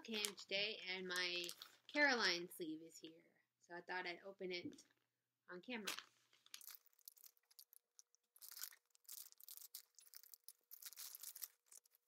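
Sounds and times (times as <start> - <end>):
plastic crinkling: 1.2 - 2.0, 5.8 - 12.0
plastic packaging tearing: 6.4 - 12.0.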